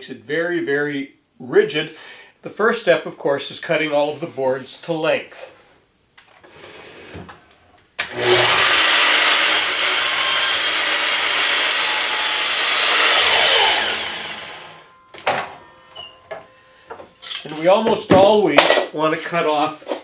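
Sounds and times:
miter saw cutting and spinning down: 8.1s - 14.9s.

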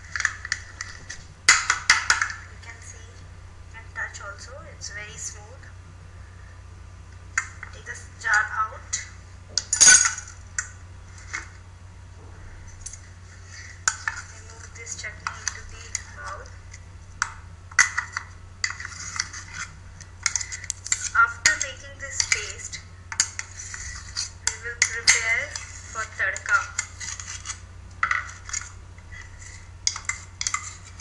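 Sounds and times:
spoon scraping steel jar: 18.6s - 31.0s.

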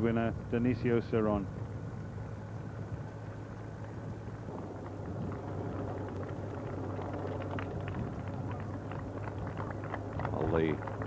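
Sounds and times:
vehicle engine drone and road noise: 0.0s - 11.0s
runners' footsteps on road: 3.8s - 11.0s.

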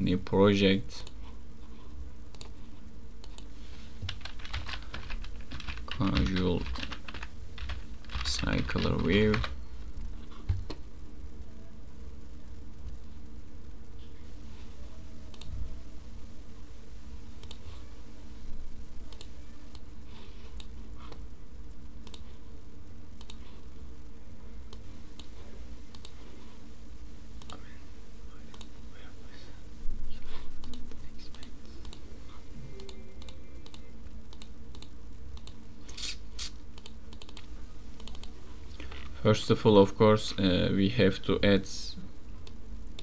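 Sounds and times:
steady low hum: 0.0s - 43.0s
computer mouse clicking: 2.3s - 2.6s, 3.2s - 9.6s, 15.3s - 15.5s, 17.4s - 17.6s, 19.1s - 19.9s, 20.5s - 21.2s, 22.0s - 22.4s, 23.2s - 23.6s, 25.9s - 26.2s, 28.5s - 28.7s, 30.6s - 32.0s, 32.8s - 38.4s.

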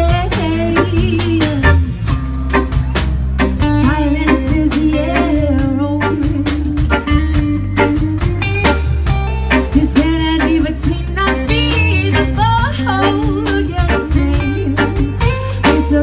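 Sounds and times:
woman singing: 0.0s - 2.0s, 3.6s - 7.0s, 9.7s - 16.0s
drum kit: 0.0s - 16.0s
electric bass: 0.0s - 16.0s
electric guitars: 0.0s - 16.0s.

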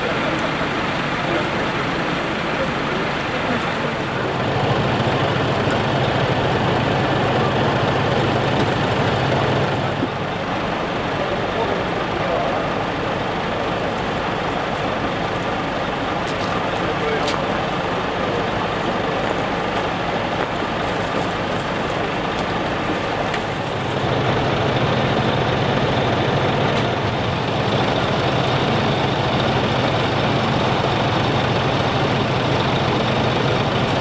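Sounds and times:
fire engine idling: 0.0s - 34.0s
deep steady hum: 21.8s - 34.0s.

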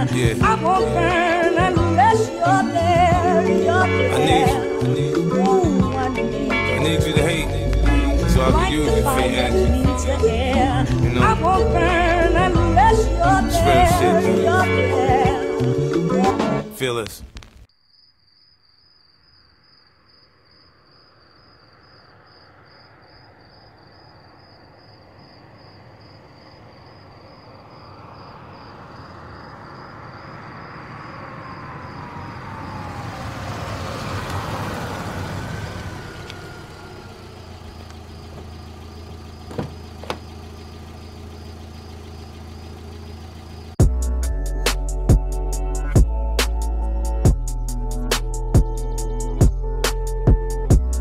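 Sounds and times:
car engine idling: 0.0s - 16.0s, 22.0s - 51.0s
crickets chirping: 17.7s - 43.8s
car door clicks: 37.7s - 40.6s.

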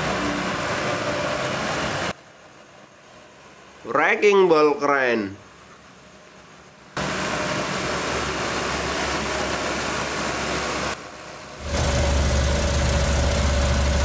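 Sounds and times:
heavy machinery diesel engines: 11.6s - 14.0s.

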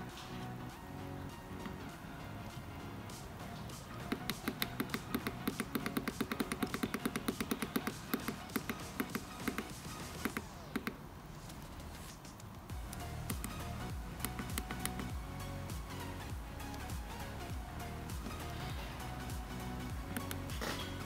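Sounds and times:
rapid sharp clicks: 3.7s - 11.0s, 11.6s - 15.2s.

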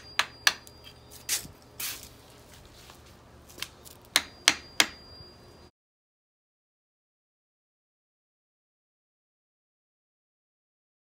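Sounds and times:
hammer tapping wooden stake: 0.0s - 0.7s, 3.6s - 5.0s.

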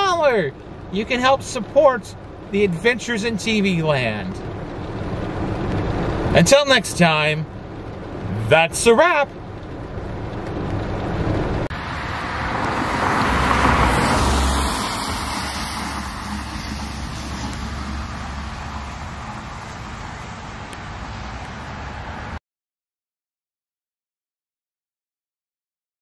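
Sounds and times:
low engine rumble: 0.0s - 22.4s
car tyres hissing on wet road: 2.3s - 22.4s.

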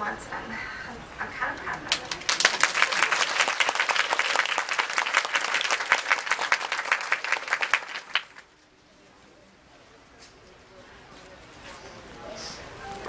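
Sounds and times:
audience applauding: 1.9s - 8.5s.

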